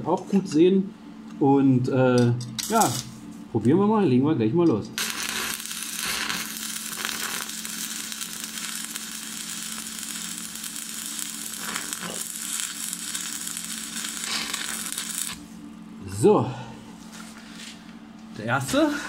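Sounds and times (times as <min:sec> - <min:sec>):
welding arc crackling and sizzling: 0:02.6 - 0:03.2, 0:05.0 - 0:15.7.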